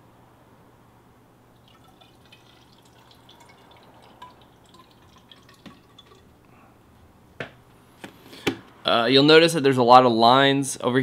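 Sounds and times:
water dripping and trickling: 1.6 - 6.5.

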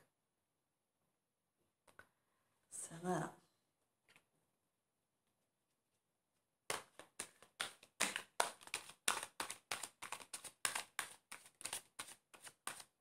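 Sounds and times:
cards being shuffled: 6.7 - 13.0.

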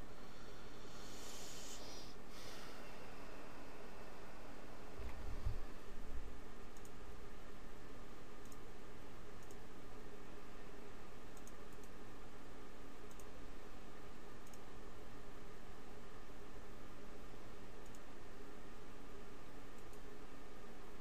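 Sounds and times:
steady hum and hiss: 0.0 - 21.0.

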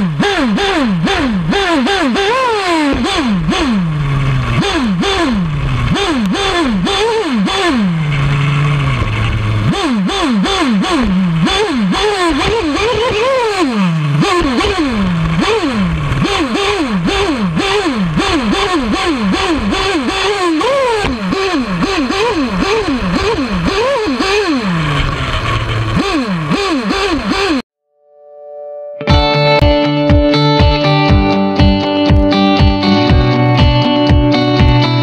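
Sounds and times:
chassis and tyres clattering: 0.0 - 27.6
model car engine revving: 0.0 - 27.7
small engine idling: 0.0 - 27.7.

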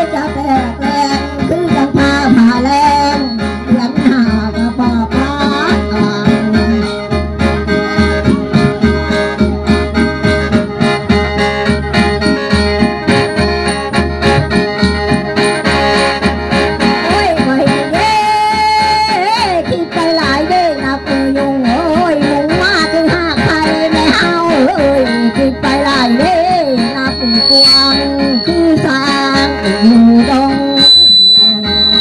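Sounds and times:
woman singing: 0.0 - 6.9, 17.0 - 31.9
mouth organ chords: 25.0 - 32.0.

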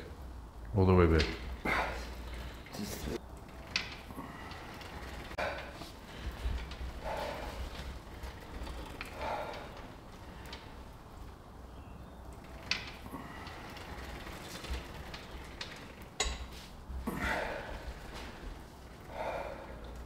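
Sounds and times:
heavy breath out: 1.6 - 2.7, 4.1 - 10.8, 17.0 - 20.0.

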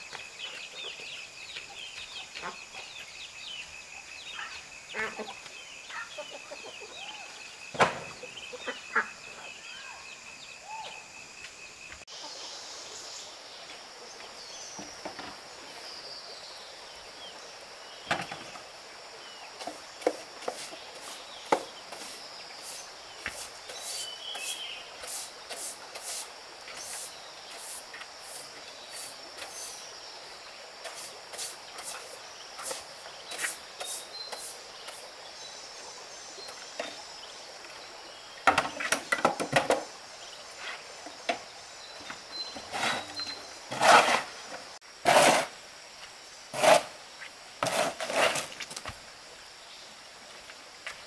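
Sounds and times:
broom sweeping sawdust: 20.1 - 29.9, 30.8 - 35.1, 42.6 - 44.4, 45.0 - 45.6, 46.5 - 48.7.

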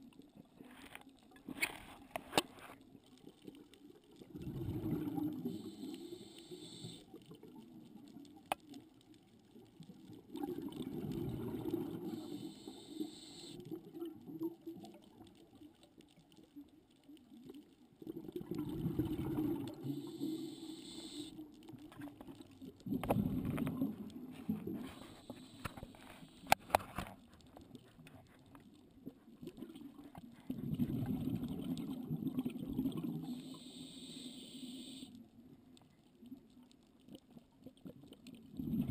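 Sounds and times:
faint hiss: 0.0 - 17.9, 18.5 - 30.9, 32.4 - 37.2
exhaled bubbles underwater: 3.2 - 16.2, 17.2 - 26.3, 29.3 - 35.0, 37.2 - 38.9.

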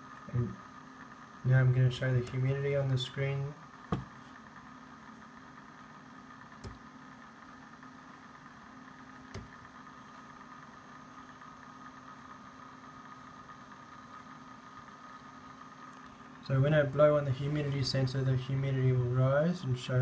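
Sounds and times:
machine hum: 0.0 - 20.0.

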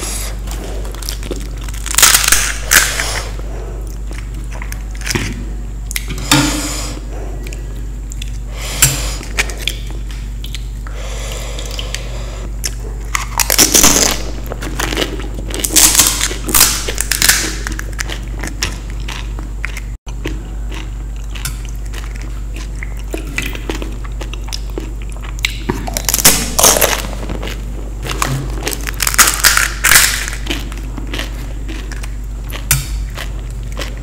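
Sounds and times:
crunching of crisp snacks: 0.3 - 5.2, 12.6 - 34.0.

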